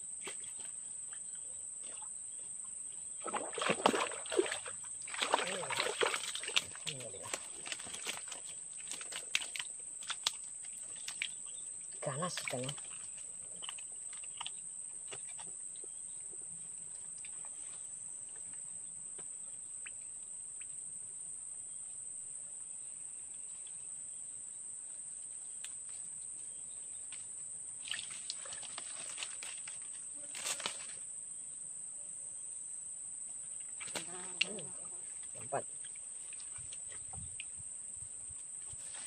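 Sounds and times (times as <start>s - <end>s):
high-pitched insect chorus: 0.2s - 17.9s.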